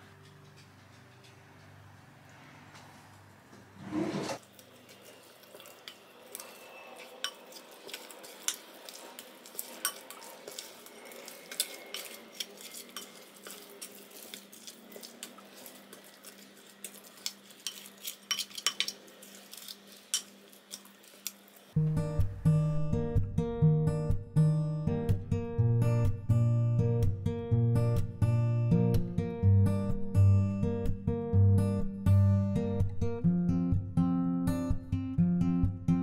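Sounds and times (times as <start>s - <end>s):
spoon stirring dough: 4.2s - 21.7s.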